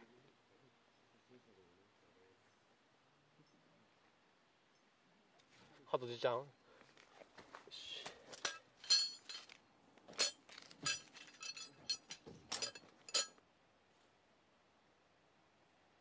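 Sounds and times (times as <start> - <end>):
metal tent pegs clinking: 8.3 - 13.4.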